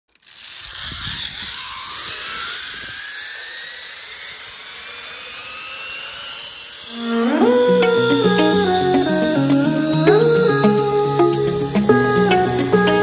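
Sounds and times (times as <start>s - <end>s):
zip-line pulleys whining: 0.1s - 13.0s
rising tone: 6.9s - 13.0s.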